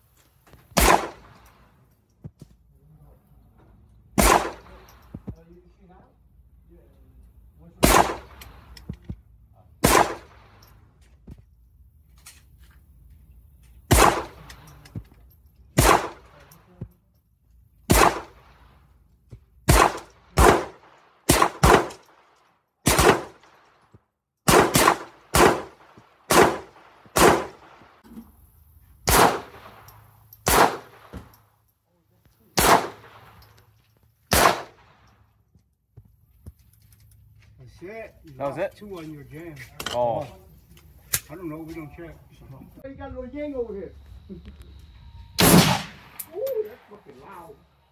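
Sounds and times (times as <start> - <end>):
gunshots with echo: 0.8 - 1.4, 4.2 - 4.9, 7.8 - 8.6, 9.8 - 10.6, 13.9 - 14.4, 15.8 - 16.4, 17.9 - 18.6, 19.7 - 22.0, 22.8 - 23.5, 24.5 - 27.8, 29.1 - 29.8, 30.4 - 31.3, 32.6 - 33.4, 34.3 - 35.0, 45.4 - 46.2.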